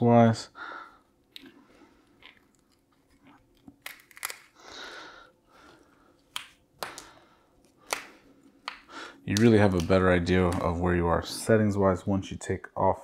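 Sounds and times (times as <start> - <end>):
plastic snapping and cracking: 3.6 - 4.6.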